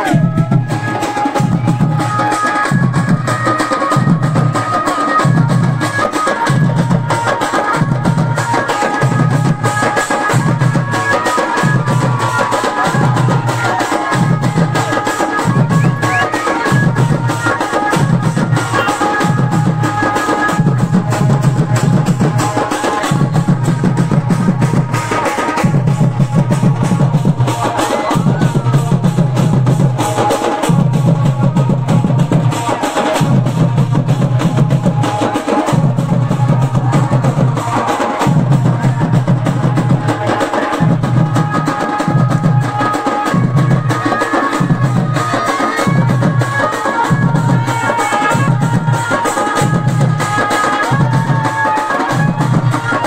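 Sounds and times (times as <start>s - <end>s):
barrel drums beating: 0.0s - 53.0s.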